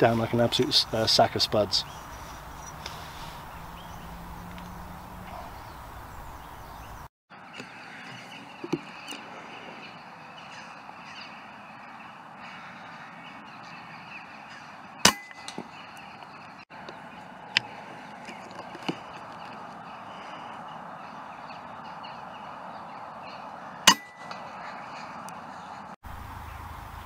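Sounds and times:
crows cawing: 7.6 - 8.3, 8.9 - 16.2, 19.0 - 25.8.

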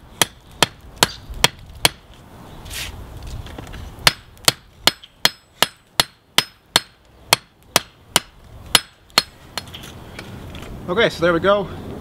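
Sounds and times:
hammer striking hot steel on anvil: 4.0 - 9.7.

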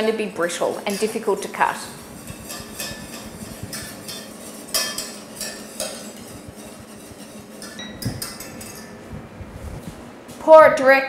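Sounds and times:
whisk scraping and clinking in pan: 0.4 - 9.0.

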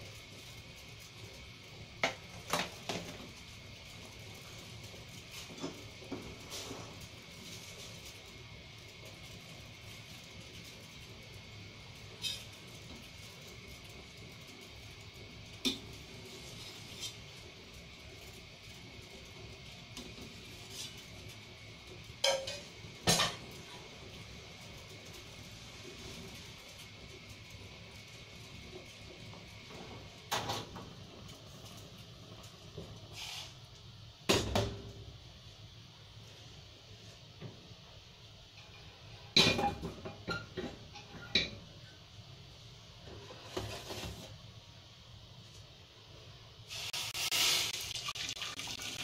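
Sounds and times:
metal cookware clanking: 22.2 - 23.5.

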